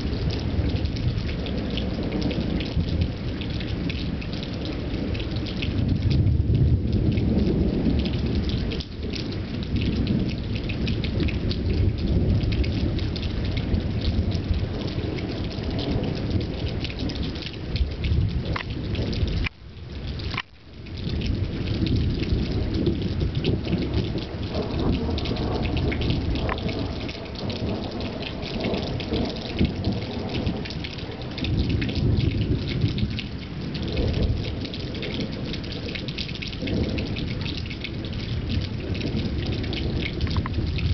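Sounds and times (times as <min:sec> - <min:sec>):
low rolling thunder: 0:00.0 - 0:40.9
steady rain pattering: 0:00.0 - 0:40.9.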